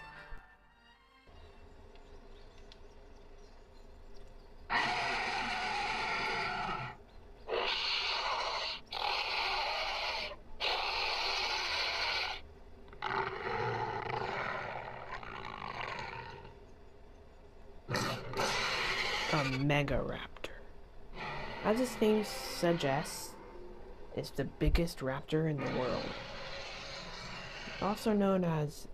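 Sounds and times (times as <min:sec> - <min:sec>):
dinosaur roars: 0:04.7 - 0:16.6, 0:17.9 - 0:19.6, 0:21.1 - 0:23.8, 0:25.6 - 0:28.2.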